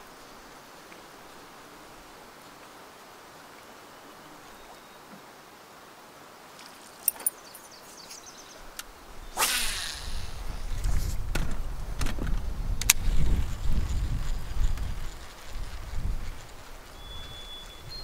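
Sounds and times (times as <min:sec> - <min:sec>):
faint steady hiss: 0:00.0 - 0:18.0
low rumbling wind: 0:08.3 - 0:18.0
brief rush of noise: 0:09.4 - 0:11.2
sharp clicks: 0:09.4 - 0:13.0
microphone handling noise: 0:09.4 - 0:15.0.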